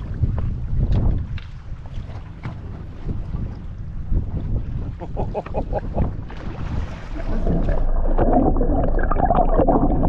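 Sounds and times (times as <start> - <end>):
sea water splashing: 0.0 - 10.0
wind on microphone: 0.0 - 10.0
muffled bubbly underwater sound: 5.0 - 10.0.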